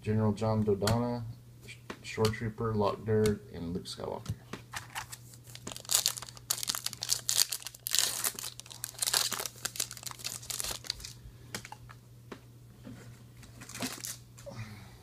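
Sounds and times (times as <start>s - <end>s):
foil wrapper crinkling: 4.7s - 11.9s, 13.4s - 14.3s.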